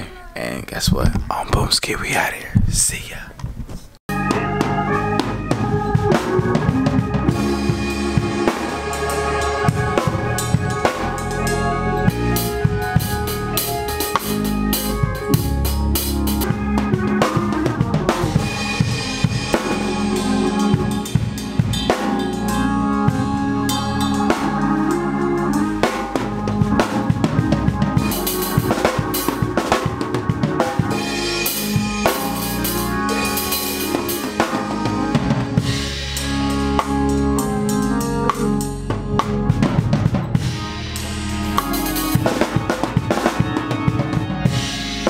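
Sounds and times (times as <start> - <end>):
drum kit groove: 0.0 - 45.0
sustained pitched instrument notes: 4.1 - 45.0.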